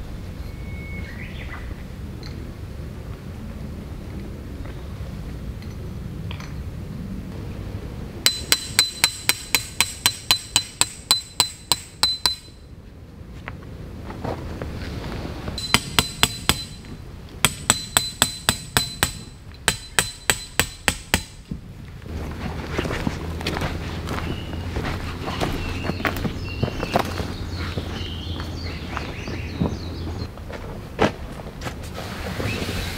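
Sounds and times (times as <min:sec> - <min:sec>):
tent pegs being hammered: 0:08.3 - 0:12.6, 0:15.6 - 0:21.6.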